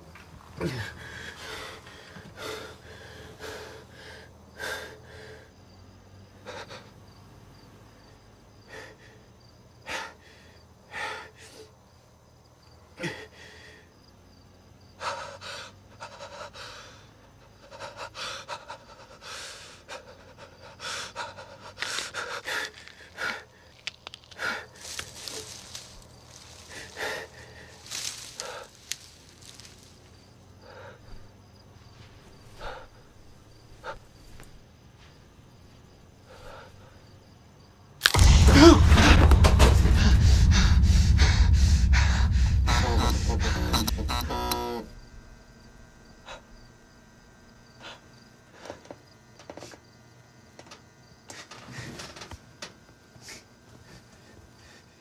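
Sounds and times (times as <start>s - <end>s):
low steady hum: 24.8s - 48.6s
man breathing in short breaths: 38.2s - 44.2s.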